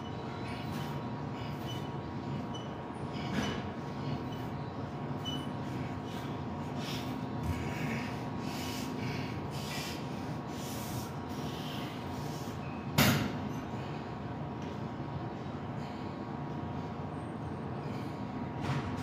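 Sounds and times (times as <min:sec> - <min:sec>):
steady hum: 0:00.0 - 0:19.0
man breathing heavily: 0:00.2 - 0:12.6, 0:15.6 - 0:16.6, 0:17.6 - 0:18.5.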